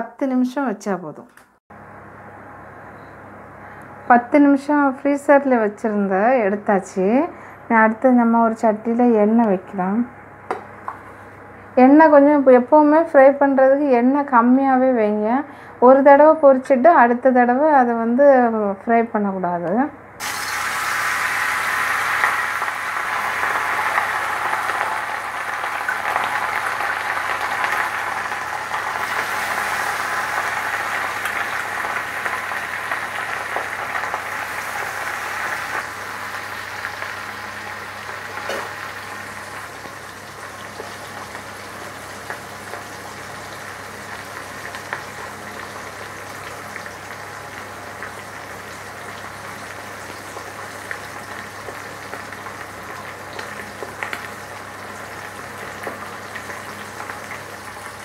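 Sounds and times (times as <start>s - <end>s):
fish sizzling in hot oil: 20.2s - 58.0s.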